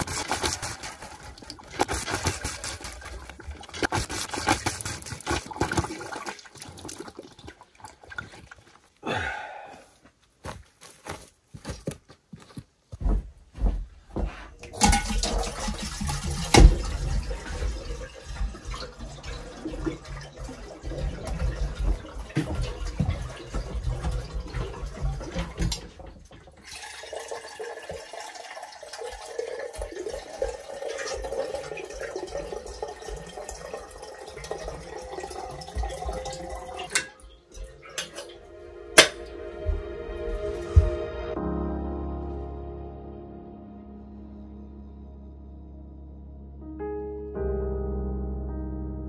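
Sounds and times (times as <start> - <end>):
water gushing from hand pump: 0.0 - 9.0, 14.7 - 38.4.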